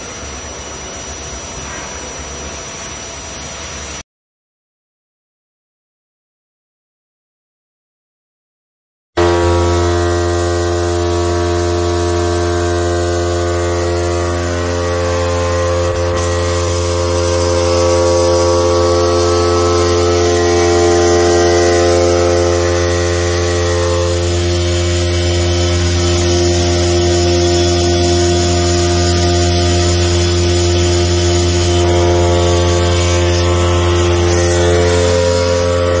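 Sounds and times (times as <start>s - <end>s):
vibrating motor humming on steel plate: 9.2s - 36.0s.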